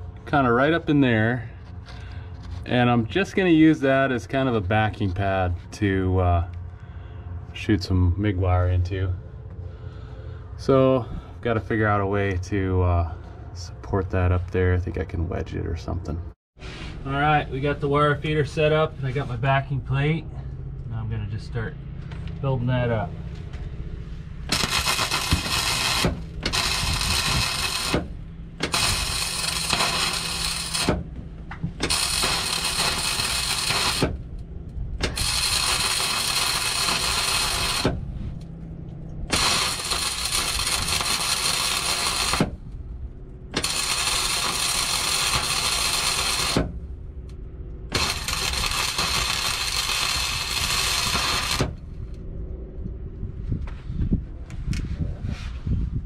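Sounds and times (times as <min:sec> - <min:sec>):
steady low hum: 0:00.0 - 0:56.0
welding arc crackling: 0:24.4 - 0:38.1, 0:39.2 - 0:42.7, 0:43.5 - 0:46.9, 0:47.9 - 0:51.8.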